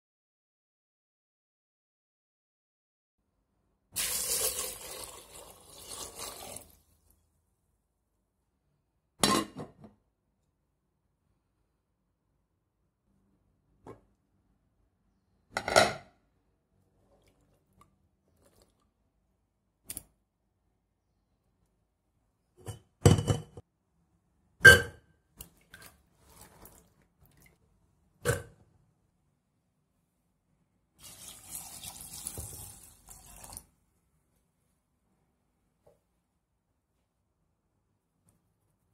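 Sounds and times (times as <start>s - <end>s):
water poured into metal pot: 4.0s - 7.1s, 25.4s - 27.6s, 31.0s - 33.7s.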